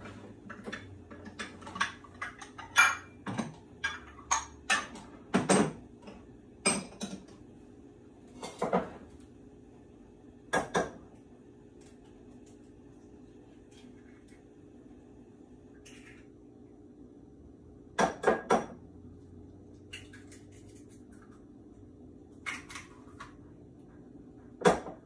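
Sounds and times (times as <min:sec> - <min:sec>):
dishes clinking and knocking: 0:00.0 - 0:07.3, 0:08.4 - 0:09.1, 0:10.5 - 0:11.0, 0:18.0 - 0:18.8, 0:24.6 - 0:25.0.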